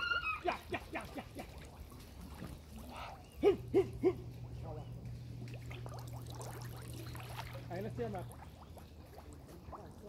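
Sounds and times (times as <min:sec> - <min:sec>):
steady low hum: 0:00.4 - 0:10.0
dog barking: 0:03.4 - 0:04.2.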